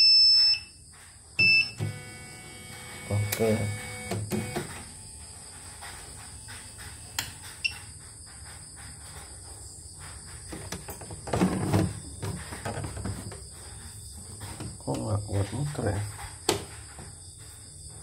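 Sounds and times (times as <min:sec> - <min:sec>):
motor labouring: 0:01.8 - 0:04.8.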